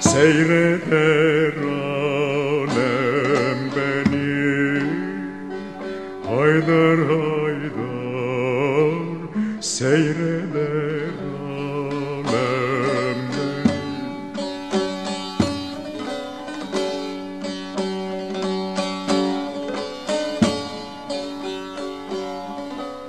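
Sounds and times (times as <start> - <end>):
man singing folk song: 0.0 - 17.2
plucked string accompaniment: 0.0 - 23.0.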